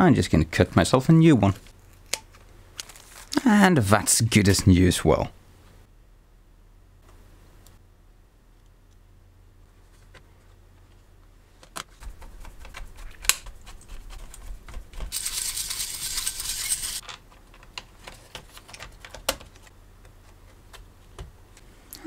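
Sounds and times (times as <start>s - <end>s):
laptop parts clicking and tapping: 17.0s - 19.7s.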